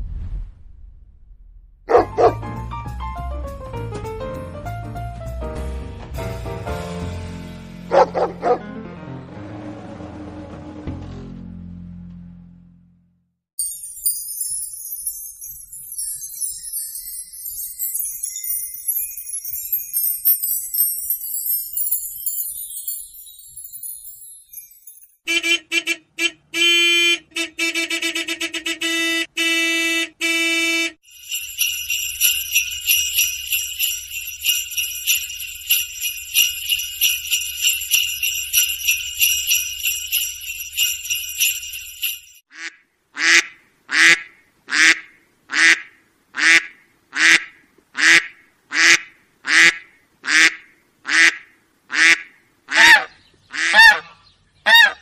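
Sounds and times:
pitched chiming tones: 0:13.6 - 0:25.2, 0:31.0 - 0:42.4
high jingling ring: 0:13.6 - 0:25.3, 0:31.0 - 0:42.5
short honks: 0:25.2 - 0:31.0.

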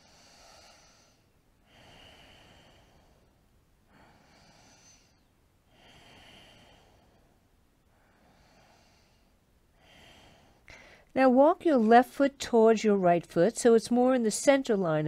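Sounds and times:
slow hissing breaths: 0:00.0 - 0:11.1.

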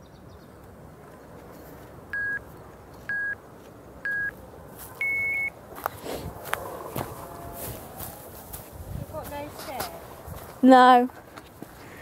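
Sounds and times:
short beeps: 0:02.2 - 0:02.4, 0:03.1 - 0:03.4, 0:04.0 - 0:04.4, 0:05.0 - 0:05.5
footsteps: 0:04.7 - 0:12.0
longer higher beep: 0:05.0 - 0:05.5.

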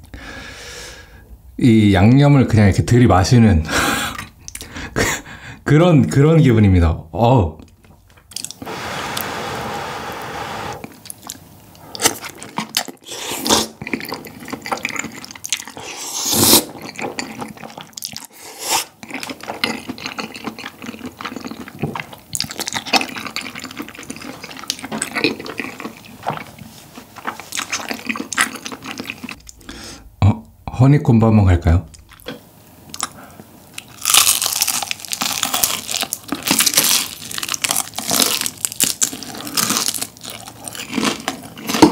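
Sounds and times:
person slurping noodles: 0:08.5 - 0:10.9, 0:13.0 - 0:14.7, 0:15.7 - 0:16.9, 0:18.3 - 0:19.0
wet chewing: 0:10.8 - 0:29.6.

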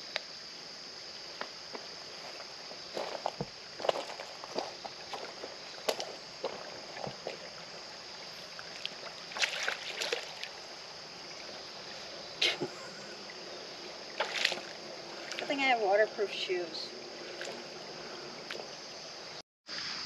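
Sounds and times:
creek trickling: 0:00.0 - 0:20.0
footsteps on wet stones: 0:01.4 - 0:10.8, 0:14.2 - 0:15.6.

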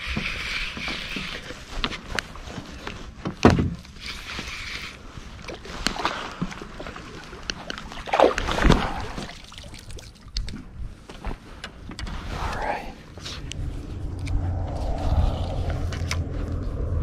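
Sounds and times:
water splashing: 0:05.4 - 0:10.7.

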